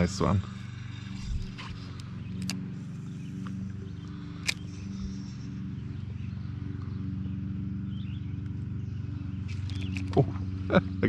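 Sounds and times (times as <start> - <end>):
electric trolling motor humming: 0.0 - 11.0
sharp clicks: 1.6 - 2.7, 4.4 - 4.8, 9.5 - 10.2.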